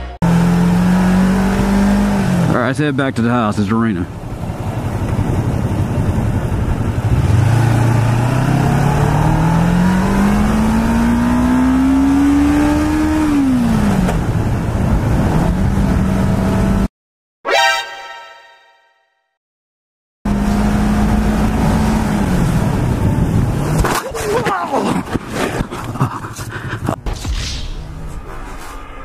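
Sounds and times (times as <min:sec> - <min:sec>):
motorcycle engine revving: 0:00.0 - 0:02.6, 0:04.4 - 0:16.9
wind rushing over microphone: 0:04.2 - 0:07.9.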